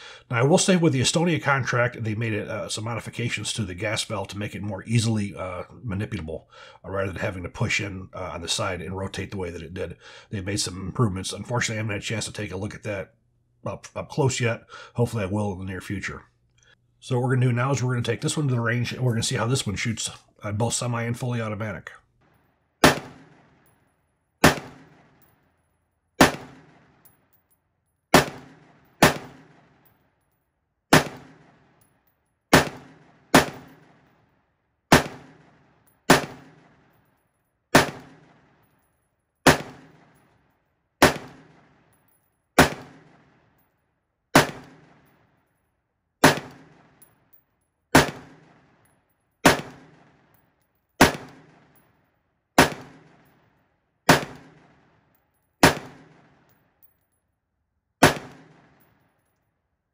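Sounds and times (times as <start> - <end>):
rifle shots echoing: 22.8 - 23.6, 24.4 - 25.2, 26.2 - 27.0, 28.1 - 29.9, 30.9 - 31.8, 32.5 - 34.1, 34.9 - 36.9, 37.7 - 38.5, 39.5 - 40.2, 41.0 - 41.8, 42.6 - 43.4, 44.4 - 45.1, 46.2 - 47.0, 48.0 - 48.8, 49.4 - 50.2, 51.0 - 51.8, 52.6 - 53.3, 54.1 - 55.0, 55.6 - 56.5, 58.0 - 58.9.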